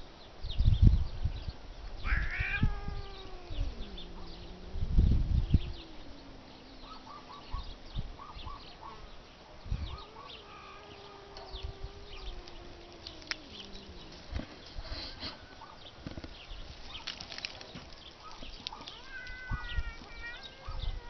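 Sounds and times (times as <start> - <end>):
small birds chirping: 0.1 - 21.0
cats yowling: 2.0 - 9.1, 9.7 - 15.8, 18.2 - 21.0.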